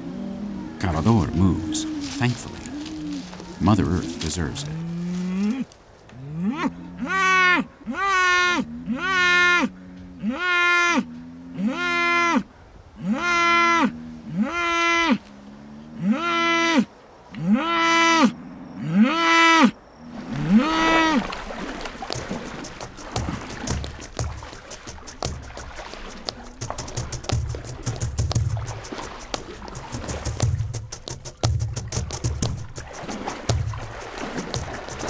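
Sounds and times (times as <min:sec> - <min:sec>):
bull bellowing: 0:00.0 - 0:21.4.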